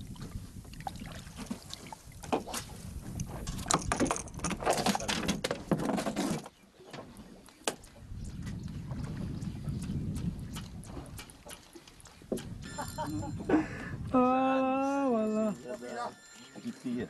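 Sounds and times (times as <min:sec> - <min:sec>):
water splashing: 0:00.0 - 0:05.1, 0:07.1 - 0:13.5
low rumble of wind and water: 0:00.0 - 0:15.1.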